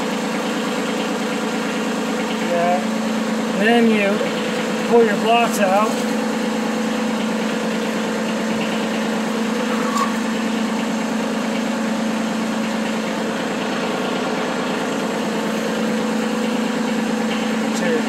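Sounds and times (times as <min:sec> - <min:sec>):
diesel engine idling: 0:00.0 - 0:18.0.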